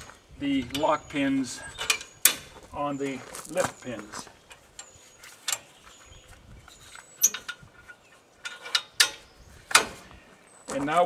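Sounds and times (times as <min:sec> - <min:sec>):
metallic clicks of hitch hardware: 0:06.7 - 0:10.0.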